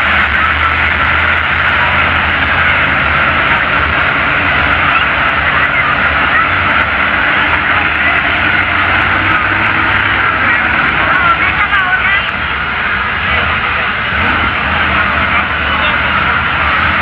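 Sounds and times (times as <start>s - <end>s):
monster truck engines rumbling: 0.0s - 17.0s.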